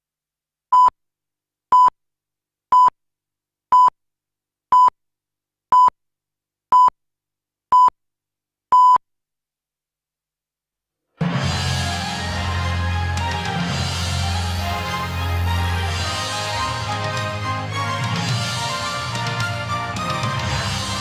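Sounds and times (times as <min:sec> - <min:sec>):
short countdown beeps: 0:08.8 - 0:09.0.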